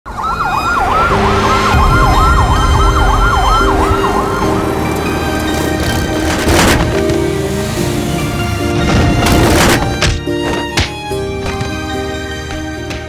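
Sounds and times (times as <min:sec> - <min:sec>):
siren yelping: 0:00.1 - 0:05.4
music: 0:00.1 - 0:13.0
sharp hit: 0:01.6 - 0:07.3.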